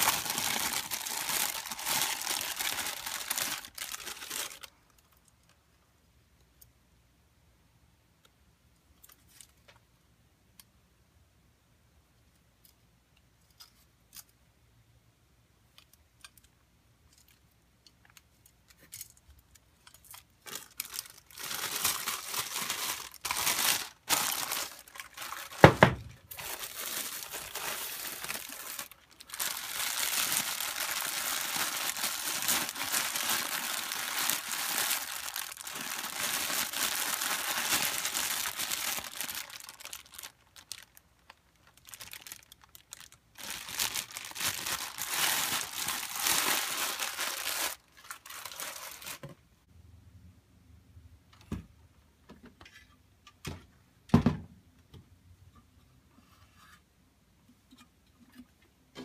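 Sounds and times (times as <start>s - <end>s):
plastic wrap crinkling: 0.0s - 5.6s, 18.1s - 49.3s.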